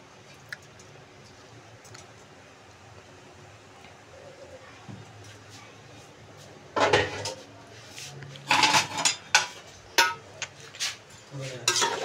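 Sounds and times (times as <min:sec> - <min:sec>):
metal spoon clanking in pot: 0:08.5 - 0:10.3, 0:11.6 - 0:12.0.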